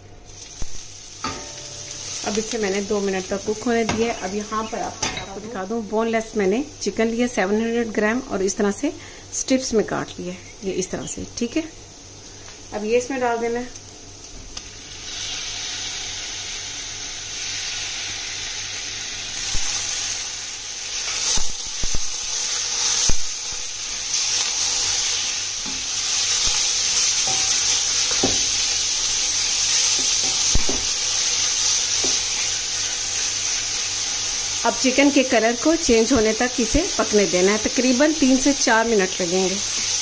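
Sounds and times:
chicken sizzling in hot oil: 0.0 - 8.7, 10.7 - 40.0
spatula scraping wok: 24.0 - 32.7.

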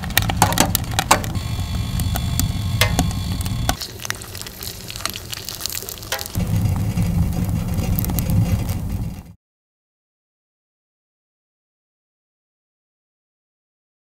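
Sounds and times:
low rumble: 0.0 - 9.4
wood stove crackling and sizzling: 0.0 - 9.4.

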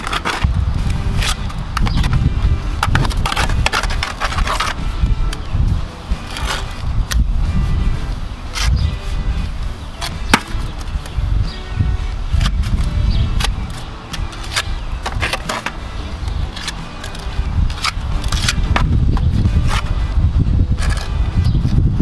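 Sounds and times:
steady low rumble: 0.0 - 15.1
trowel scraping and tapping stone: 2.8 - 5.4, 12.4 - 20.0.

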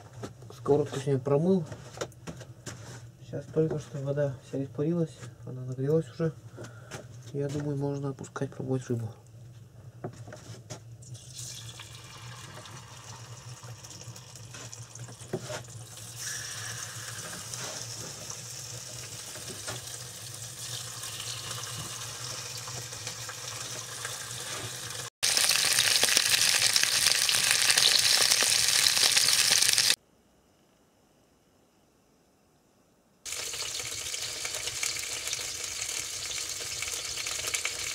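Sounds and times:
fish sizzling in hot oil: 11.2 - 30.0, 33.3 - 37.9.

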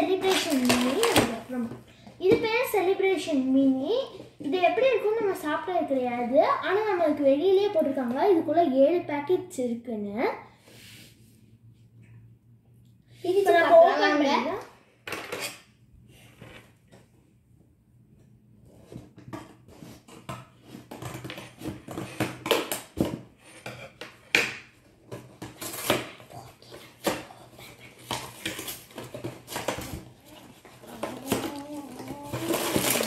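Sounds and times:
cardboard box crackling and ripping: 29.5 - 33.0.

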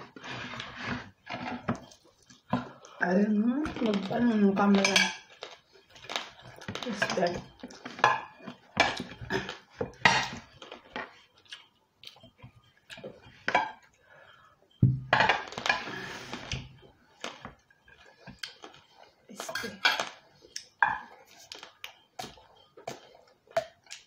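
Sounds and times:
cutlery scraping on ceramic plates: 0.0 - 2.8, 3.8 - 5.4, 6.0 - 11.2, 15.1 - 16.8, 19.4 - 20.2.

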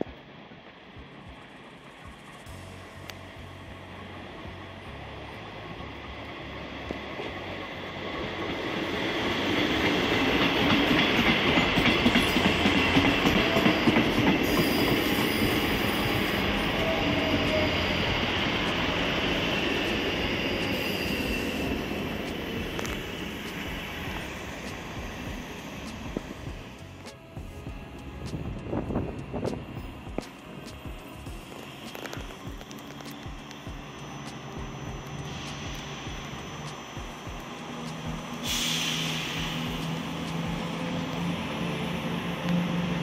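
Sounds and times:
train wheels clattering on rails: 7.2 - 41.4
high wheel squeal: 10.8 - 26.7.

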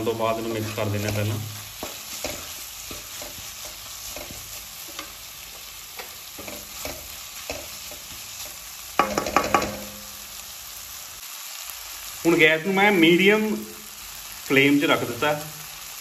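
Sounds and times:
spatula stirring and scraping: 0.0 - 9.9
vegetables sizzling in oil: 0.0 - 16.0
spatula knocking on metal pan: 9.0 - 10.1.

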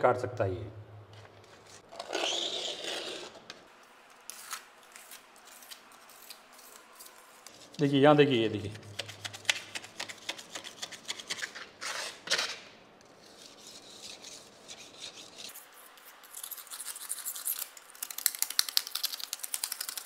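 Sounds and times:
razor blade scraping stone: 1.9 - 3.4, 13.1 - 15.7.

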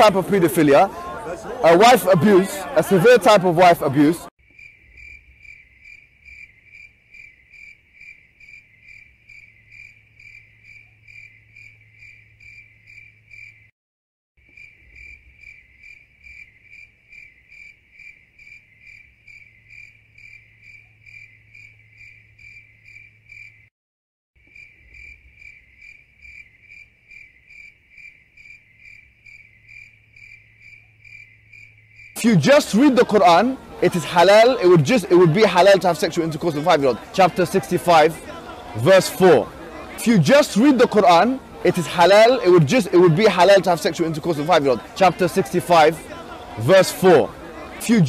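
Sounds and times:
cricket chirping: 4.4 - 13.7, 14.4 - 23.7, 24.4 - 32.2.

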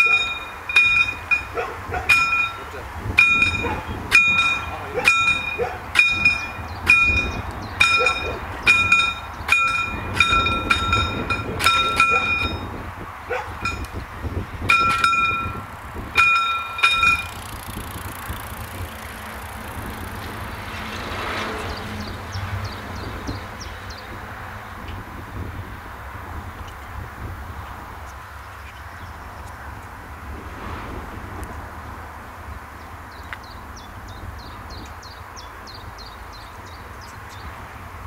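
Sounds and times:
level crossing warning bell: 0.0 - 17.6.

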